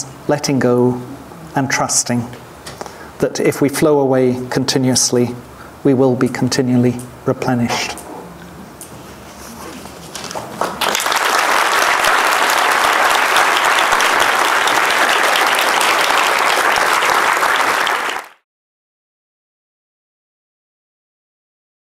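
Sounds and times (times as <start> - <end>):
audience applauding: 10.2 - 18.4.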